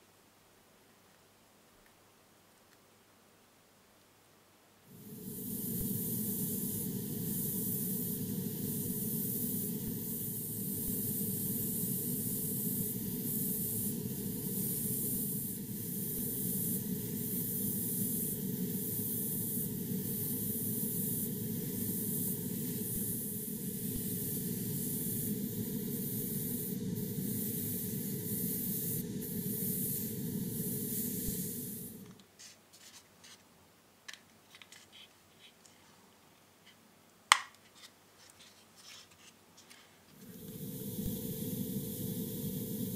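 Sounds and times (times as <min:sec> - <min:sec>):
airbrush spraying hiss: 0:04.9 - 0:32.5, 0:40.1 - 0:42.9.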